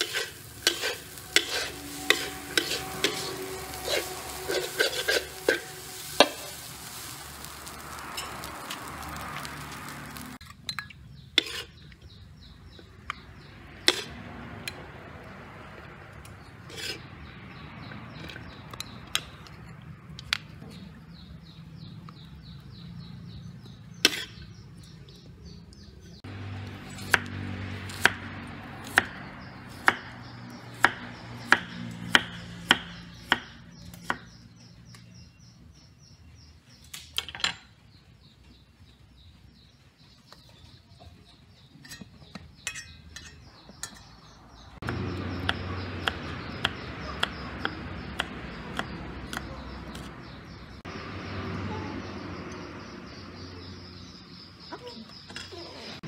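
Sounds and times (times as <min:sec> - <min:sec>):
knife chopping on wooden board: 0:44.9 - 0:50.1.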